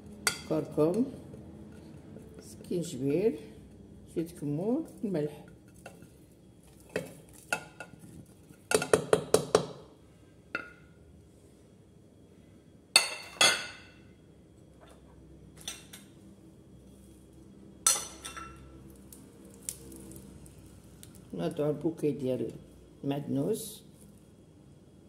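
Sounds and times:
utensils knocking on metal pot: 0:08.7 - 0:09.8.

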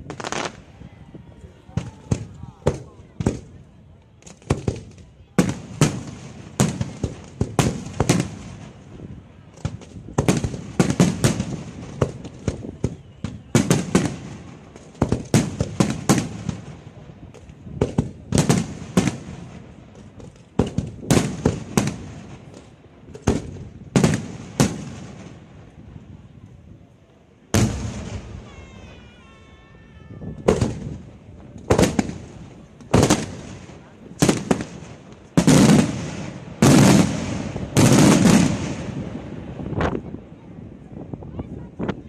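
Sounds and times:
firework shells bursting: 0:00.0 - 0:00.6.

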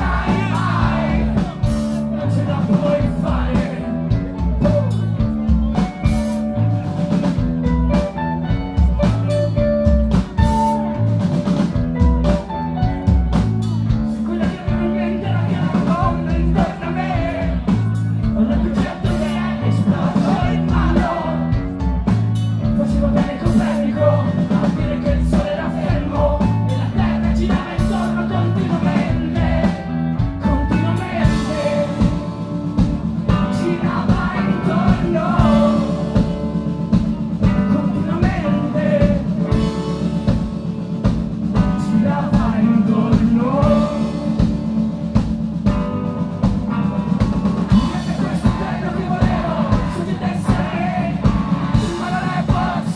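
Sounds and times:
man singing: 0:00.0 - 0:06.1, 0:14.1 - 0:32.5, 0:33.3 - 0:36.5, 0:37.4 - 0:40.1, 0:41.5 - 0:44.5, 0:47.7 - 0:52.9
drums: 0:00.0 - 0:52.9
electric guitars: 0:00.0 - 0:52.9.

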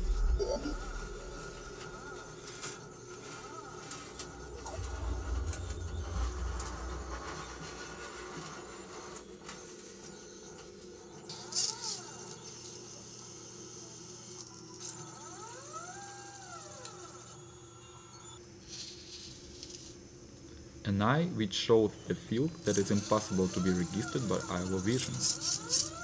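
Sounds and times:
low rumble: 0:00.0 - 0:02.4, 0:04.4 - 0:08.1
steady hum: 0:00.0 - 0:11.2
electric motor whining: 0:00.0 - 0:18.3, 0:22.3 - 0:26.0.

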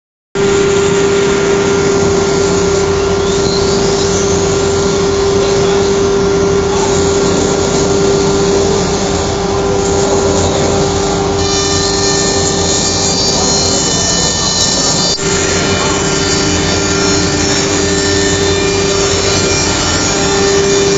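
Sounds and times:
higher steady tones: 0:00.4 - 0:20.9
loud rushing noise: 0:00.4 - 0:20.9
router spindle whine: 0:00.4 - 0:20.9.

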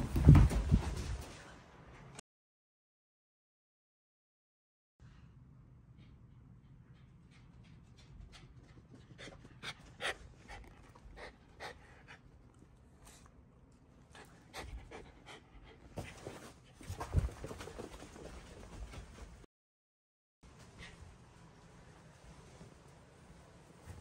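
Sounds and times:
dog panting: 0:06.0 - 0:13.3, 0:14.1 - 0:16.5.

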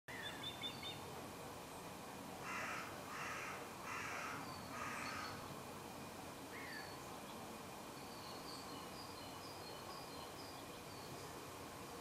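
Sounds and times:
faint small birds chirping: 0:00.1 - 0:01.9, 0:02.5 - 0:05.5, 0:06.5 - 0:12.0
crow cawing: 0:02.4 - 0:05.4.

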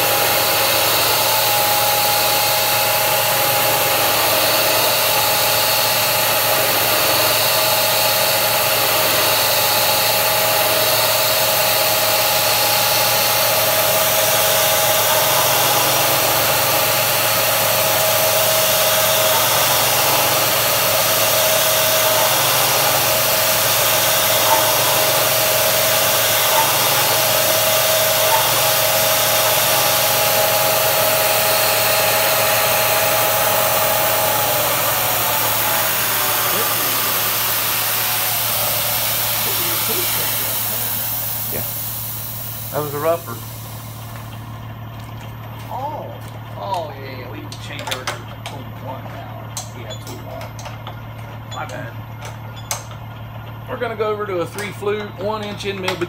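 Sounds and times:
mist coolant sprayer hissing: 0:00.0 - 0:44.5
machine spindle whine: 0:00.0 - 0:56.0.

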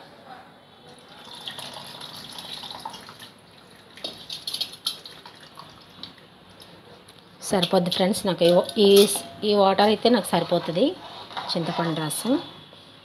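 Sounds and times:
liquid pouring and splashing: 0:01.1 - 0:06.3.

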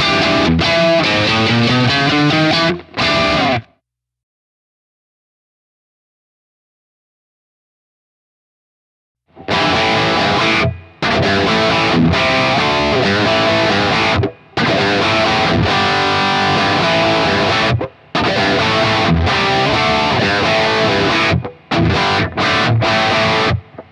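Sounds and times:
distorted electric guitar riffing: 0:00.0 - 0:03.8, 0:09.3 - 0:23.9.

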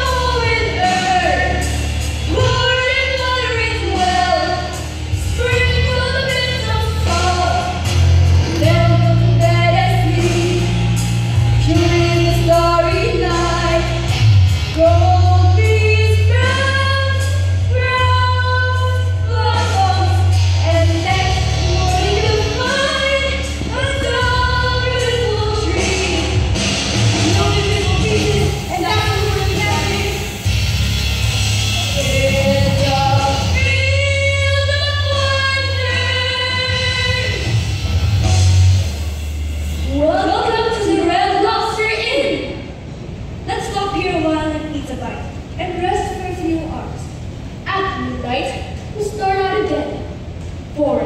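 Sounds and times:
bass line: 0:00.0 - 0:41.4
person singing: 0:31.8 - 0:37.4.

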